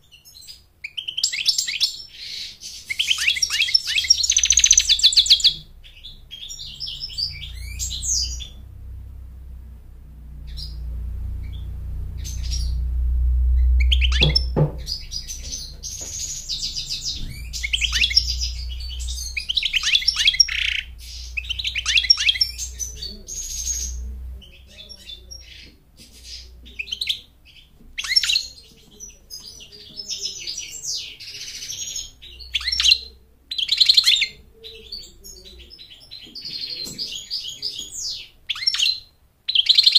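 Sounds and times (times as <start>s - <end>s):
goldfinch twittering and chirping: 0.1s - 8.9s, 10.4s - 12.9s, 13.6s - 39.9s
low rumble: 3.1s - 29.3s
knock: 14.2s - 16.2s.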